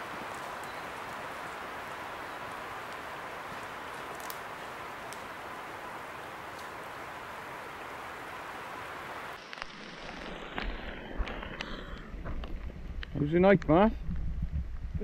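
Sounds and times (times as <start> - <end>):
stream running over cascade: 0.0 - 11.6
wind rumble on microphone: 10.2 - 15.0.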